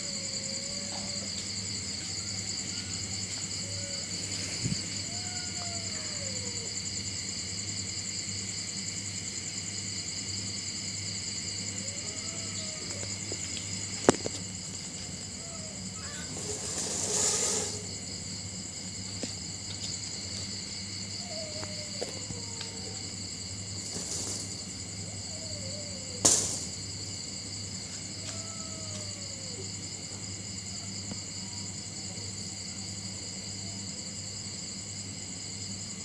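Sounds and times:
crickets chirring: 0:00.0 - 0:36.0
rustle: 0:12.8 - 0:18.0, 0:23.7 - 0:24.9.

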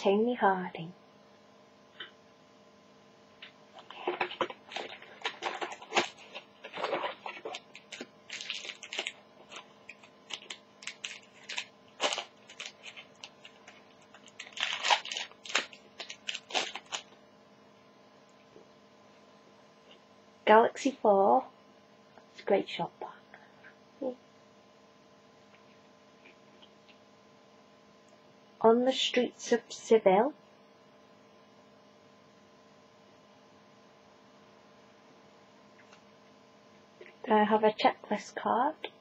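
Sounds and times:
card pack crinkling and rustling: 0:03.8 - 0:17.2.

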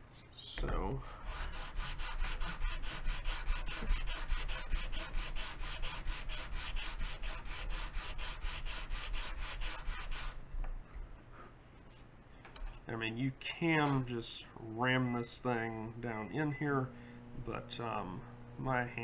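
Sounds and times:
sanding block rubbing wood: 0:01.2 - 0:10.4.

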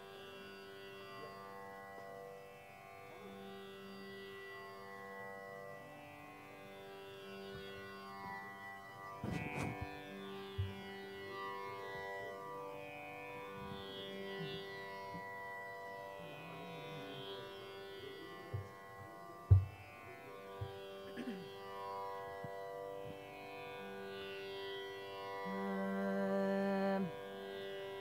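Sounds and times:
tanpura drone: 0:00.0 - 0:28.0
soft knocks: 0:10.6 - 0:10.8, 0:19.5 - 0:19.8
sharp loud thump: 0:19.5 - 0:19.7.

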